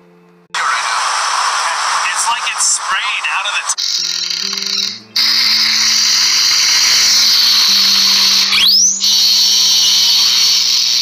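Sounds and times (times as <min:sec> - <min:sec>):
harsh high-pitched electric buzz: 0:03.7 - 0:11.0
low held tones: 0:03.8 - 0:09.2.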